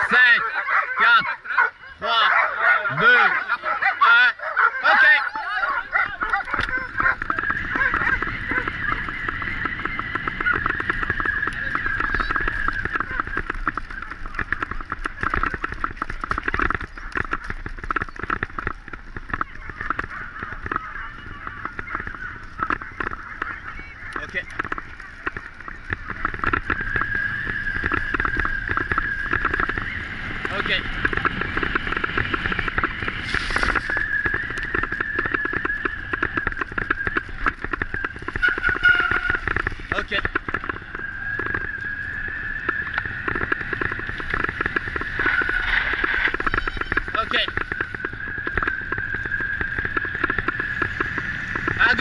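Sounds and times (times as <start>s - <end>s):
bicycle rattling over grass: 2.9s - 52.0s
wind rumble on microphone: 2.9s - 52.0s
steady high squeal: 19.3s - 52.0s.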